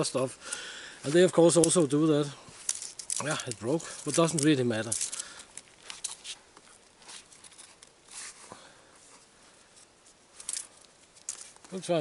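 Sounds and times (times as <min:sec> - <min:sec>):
sapling rustling and scraping: 0:01.0 - 0:12.0
small clicks from bark and wood: 0:01.6 - 0:02.0.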